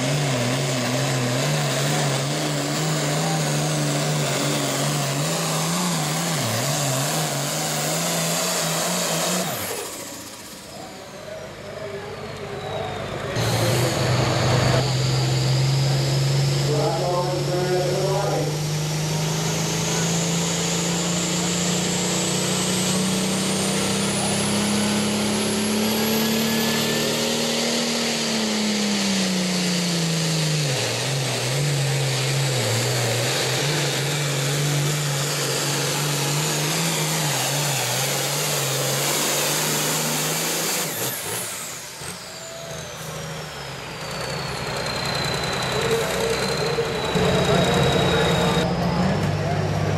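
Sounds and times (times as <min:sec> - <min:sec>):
diesel engine running flat out: 0:00.0 - 0:49.9
turbo whine: 0:39.8 - 0:49.9.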